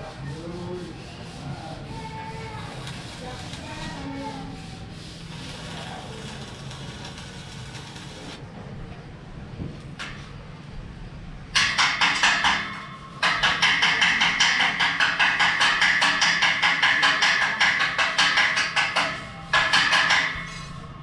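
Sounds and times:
hammer striking metal post: 0:11.6 - 0:20.6.

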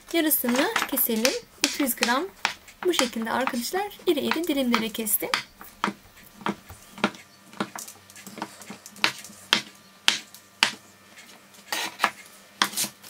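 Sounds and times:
knife tapping on cutting board: 0:00.5 - 0:03.6, 0:04.3 - 0:07.7.

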